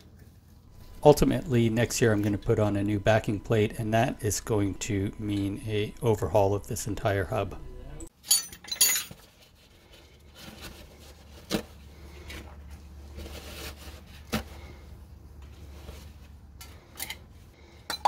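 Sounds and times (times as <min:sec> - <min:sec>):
faint low hum: 0:00.0 - 0:08.1.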